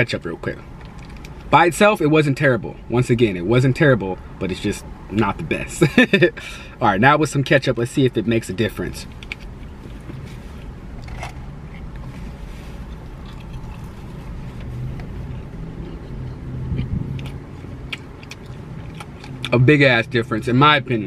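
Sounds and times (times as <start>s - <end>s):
low hum inside car: 0.0s - 21.0s
person chewing: 9.1s - 19.6s.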